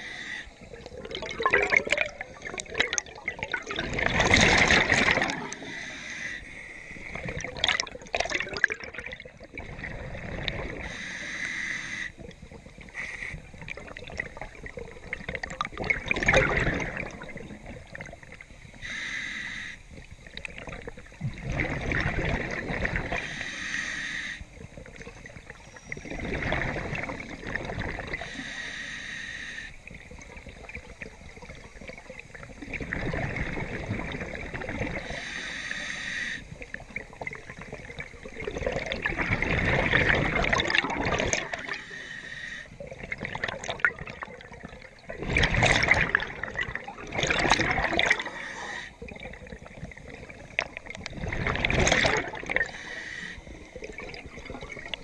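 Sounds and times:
regulator inhalation hiss: 0.0s - 0.7s, 5.6s - 7.2s, 10.8s - 12.2s, 12.9s - 13.4s, 18.7s - 20.0s, 23.2s - 24.6s, 28.2s - 29.8s, 35.0s - 36.6s, 41.8s - 42.8s, 48.3s - 49.0s, 52.7s - 53.6s
exhaled bubbles rushing: 0.6s - 5.8s, 7.0s - 10.9s, 12.2s - 18.8s, 20.2s - 23.4s, 24.6s - 28.3s, 29.8s - 35.2s, 36.5s - 41.9s, 42.8s - 55.0s.

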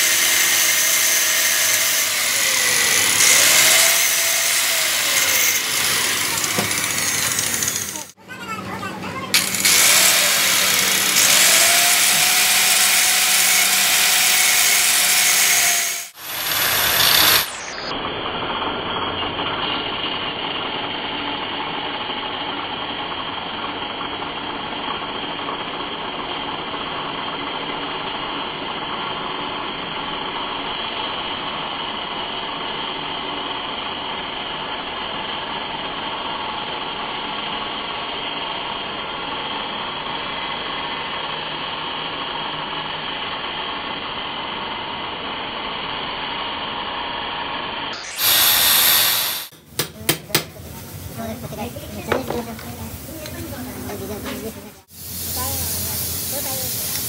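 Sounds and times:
loud harsh burst: 0.0s - 18.7s, 47.9s - 49.6s
workshop machine running: 0.0s - 57.0s.

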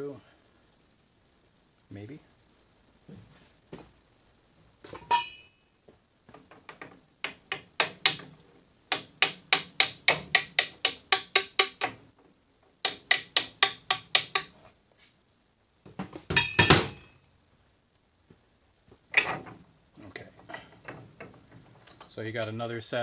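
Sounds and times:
ringing metallic clank: 4.9s - 5.6s, 16.3s - 17.2s, 19.1s - 19.6s
hammer tapping on brass drift: 7.2s - 8.3s, 8.9s - 12.0s, 12.8s - 14.6s.

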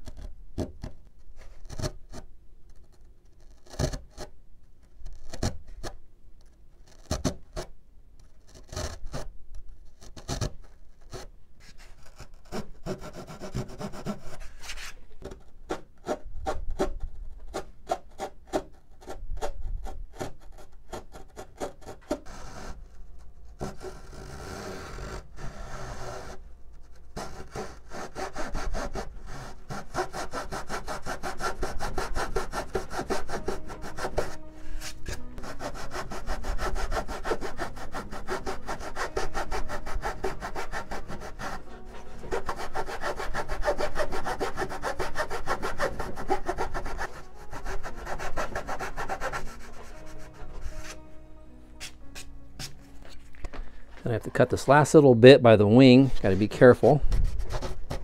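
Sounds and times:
saw cutting wood: 20.2s - 23.0s, 23.6s - 26.4s, 27.2s - 51.2s.

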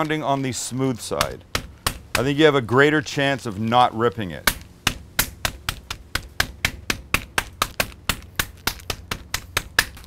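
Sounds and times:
meat mallet pounding: 1.0s - 2.6s, 4.4s - 10.0s.

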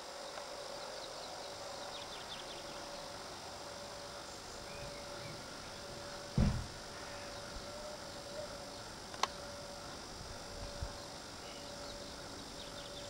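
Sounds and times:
low steady hum: 0.0s - 13.0s
faint high bird chirps: 4.2s - 5.9s, 10.6s - 13.0s.

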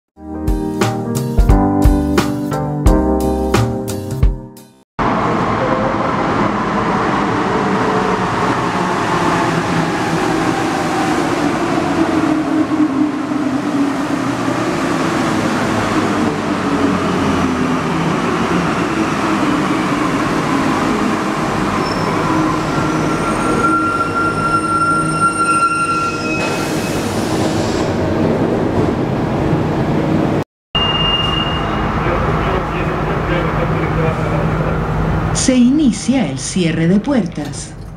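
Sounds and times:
metro train motor whine: 5.0s - 36.6s
high-pitched brake squeals: 21.8s - 27.8s, 30.8s - 32.2s.

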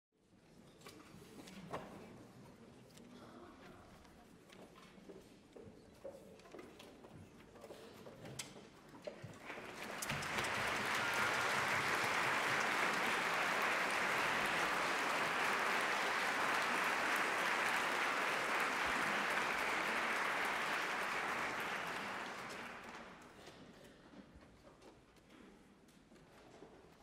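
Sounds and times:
audience applauding: 9.4s - 23.3s.

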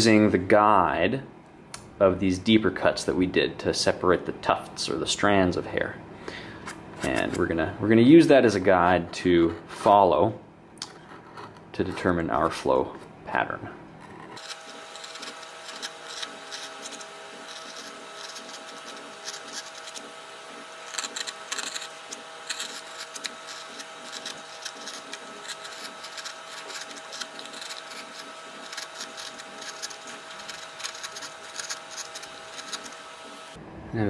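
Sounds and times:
steady hum: 0.0s - 34.0s
gouge scraping wood: 10.9s - 12.2s, 14.0s - 33.5s.

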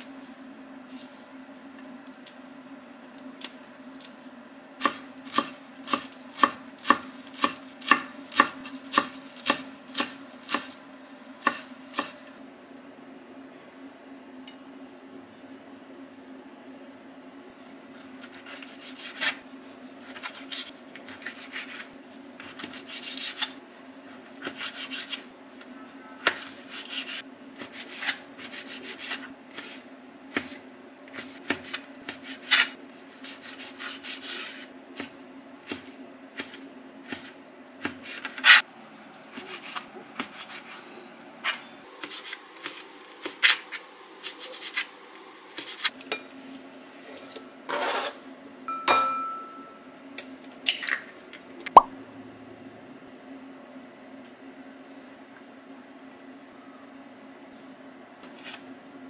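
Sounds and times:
low steady hum: 46.0s - 59.0s.

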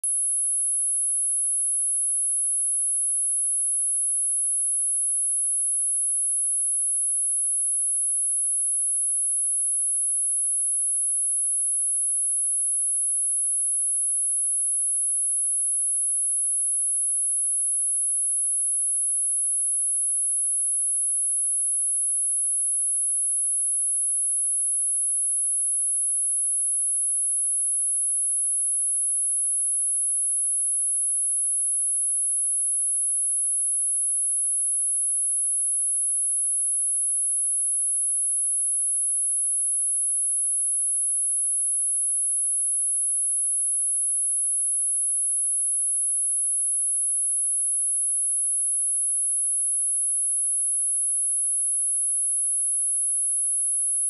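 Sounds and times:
high-pitched sine test tone: 0.0s - 6.1s, 44.0s - 54.0s.

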